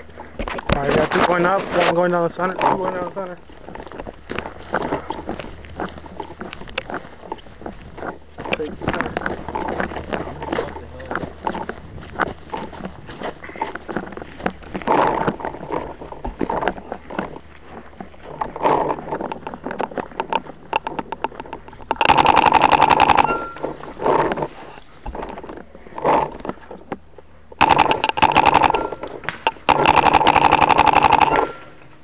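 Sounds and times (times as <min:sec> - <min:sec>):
paintball marker firing rapidly: 0:22.0 - 0:23.3, 0:27.6 - 0:31.6.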